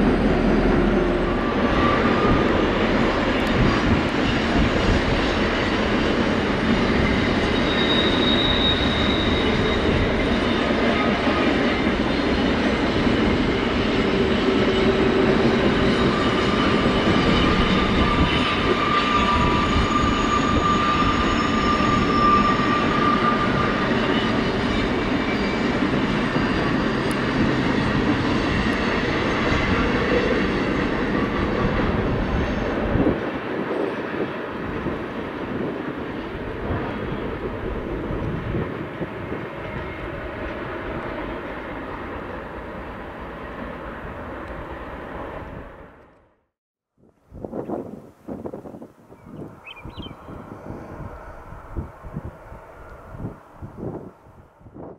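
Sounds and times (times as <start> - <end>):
freight train wheels rumbling: 0.0 - 46.1
wheel squeals: 6.6 - 32.8.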